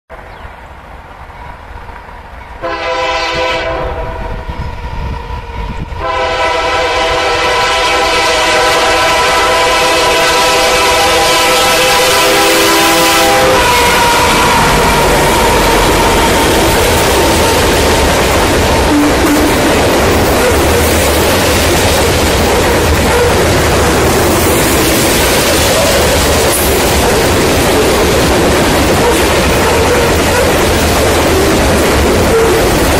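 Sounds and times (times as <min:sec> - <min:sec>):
train rumble: 0:00.1 - 0:32.9
locomotive air horn blasts: 0:02.6 - 0:04.5, 0:06.0 - 0:17.9.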